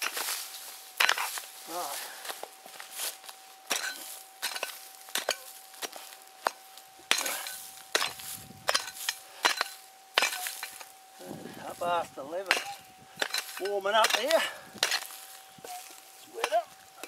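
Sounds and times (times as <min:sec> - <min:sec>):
soil scraping: 0:00.0 - 0:17.0
pick chopping into dry dirt: 0:03.7 - 0:10.9, 0:12.4 - 0:15.4.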